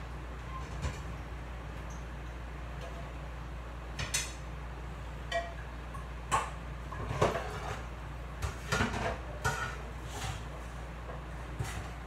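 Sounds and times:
dishes clinking and knocking: 5.3s - 5.6s, 8.4s - 9.9s.

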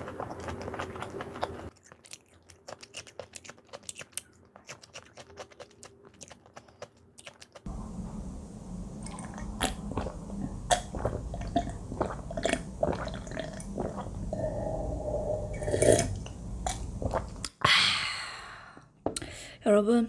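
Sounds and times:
chewing crunchy fried chicken: 0.0s - 7.7s
low steady hum: 7.7s - 19.5s.

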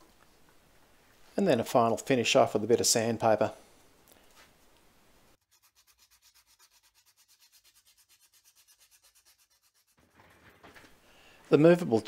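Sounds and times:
sandpaper rubbing on metal: 5.4s - 10.2s.

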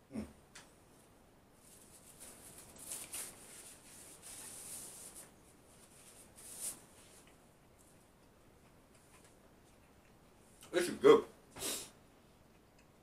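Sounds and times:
hands rustling a tortilla wrap: 1.6s - 8.0s.

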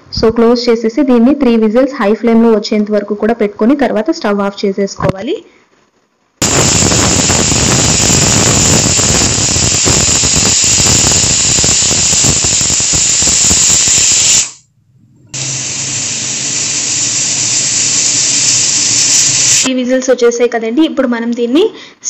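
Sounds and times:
pressure cooker whistle shrieking: 6.4s - 14.6s, 15.4s - 19.7s.

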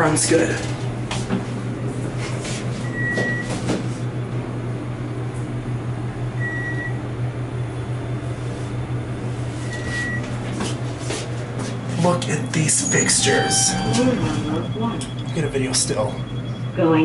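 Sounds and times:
low elevator hum: 0.0s - 17.0s
elevator electronic beep: 2.8s - 3.6s, 6.3s - 7.1s, 9.6s - 10.4s, 11.9s - 17.0s.

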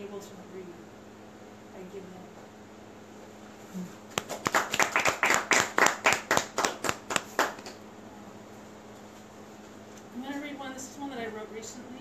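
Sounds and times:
audience hand clapping: 4.1s - 7.8s.

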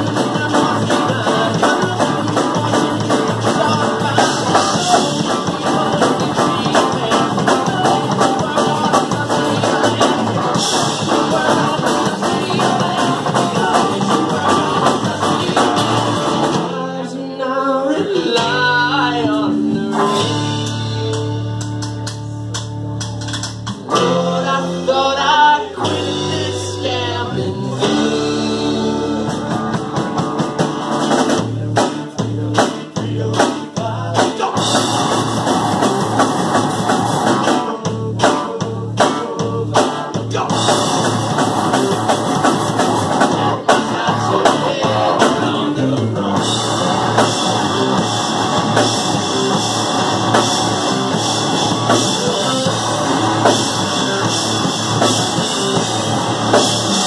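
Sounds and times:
live rock band playing: 0.0s - 57.0s
guitar lines: 40.0s - 57.0s.

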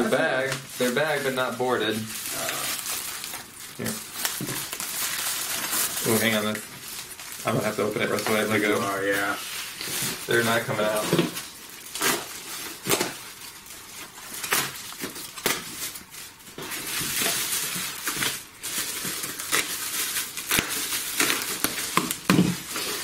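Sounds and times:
bubble wrap crinkling: 0.0s - 23.0s.

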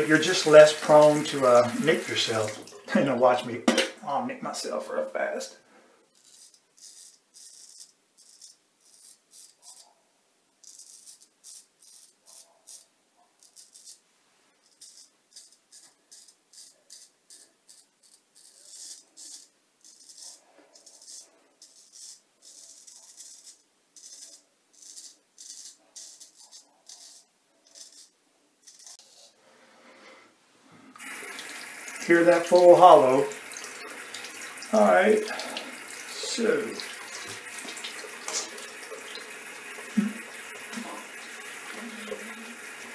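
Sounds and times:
razor scraping beard stubble: 6.1s - 9.9s, 10.6s - 14.0s, 14.6s - 29.2s, 31.0s - 42.8s.

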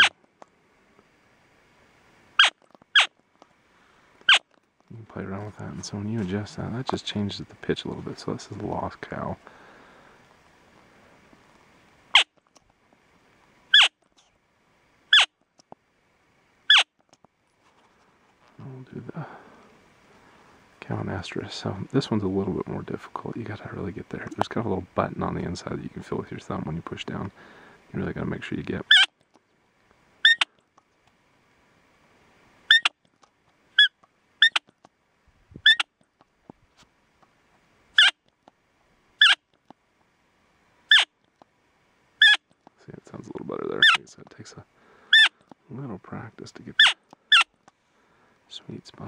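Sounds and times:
elk call high-pitched: 2.4s - 3.1s, 13.7s - 14.0s, 15.1s - 15.4s, 16.7s - 16.9s, 28.8s - 29.1s, 30.2s - 30.5s, 32.7s - 33.0s, 33.8s - 34.7s, 35.6s - 35.9s, 38.0s - 38.2s, 39.2s - 39.4s, 40.9s - 41.1s, 42.2s - 42.5s, 43.7s - 44.1s, 45.1s - 45.4s.

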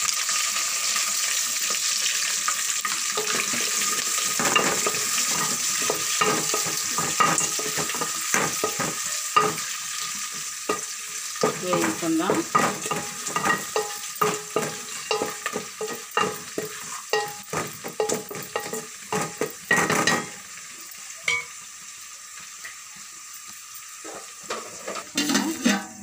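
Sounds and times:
food sizzling in oil: 0.0s - 26.0s
wooden spatula scraping pot: 3.2s - 10.8s, 11.4s - 20.4s, 24.1s - 26.0s
cookware clattering: 3.2s - 20.4s, 21.2s - 21.6s, 24.1s - 26.0s.

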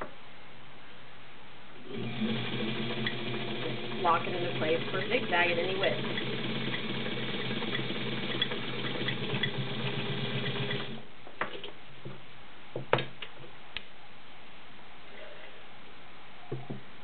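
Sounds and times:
sewing machine running: 1.8s - 11.0s.

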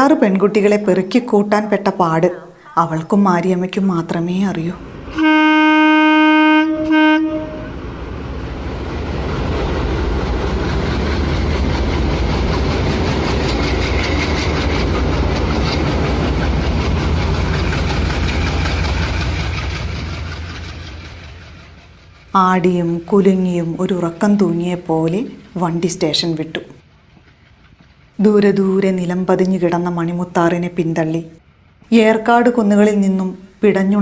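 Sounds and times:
train rumble: 3.5s - 33.2s
train horn: 5.1s - 7.8s
wheels clickety-clack: 8.9s - 23.0s, 26.8s - 30.1s.

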